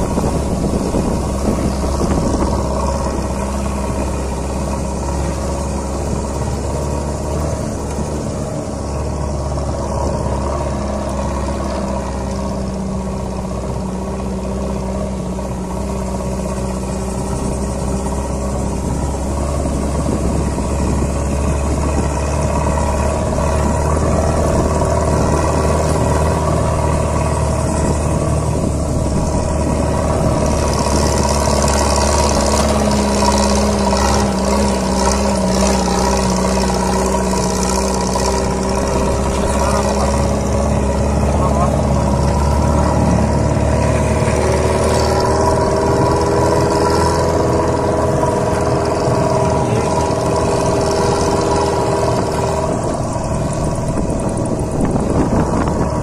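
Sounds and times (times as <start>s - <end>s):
vehicle engine droning: 0.0s - 56.0s.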